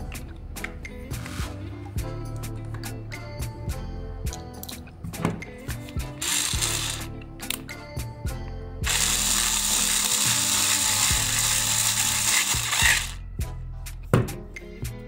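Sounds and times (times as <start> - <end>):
electric screwdriver motor running: 6.2 - 7.1, 8.8 - 13.2.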